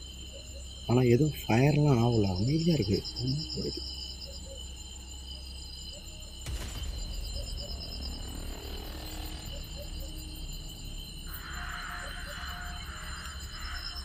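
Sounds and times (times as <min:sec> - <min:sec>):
crickets chirping: 0:00.0 - 0:14.0
dark horror music drone: 0:06.0 - 0:14.0.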